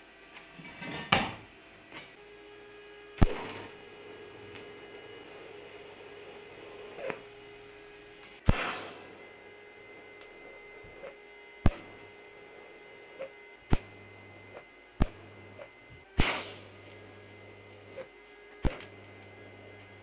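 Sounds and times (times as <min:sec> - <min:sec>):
faint hum and whine: 0:00.0 - 0:20.0
welding arc strike crack: 0:03.2 - 0:03.8, 0:08.5 - 0:09.3, 0:11.7 - 0:12.1, 0:16.2 - 0:17.7, 0:18.6 - 0:19.4
welding crackle: 0:03.2 - 0:07.2, 0:08.5 - 0:20.0.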